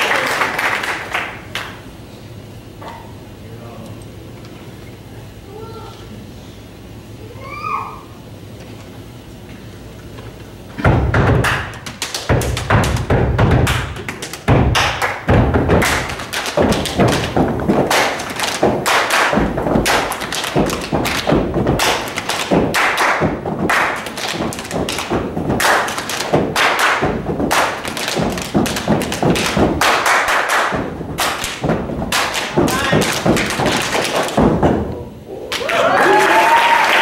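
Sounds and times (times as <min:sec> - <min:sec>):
feet stomping on stage floor: 0:10.8 - 0:34.9.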